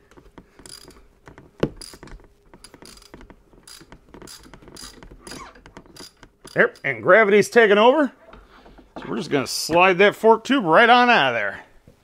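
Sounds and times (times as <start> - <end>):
hand ratchet clicking: 0.1 - 7.0.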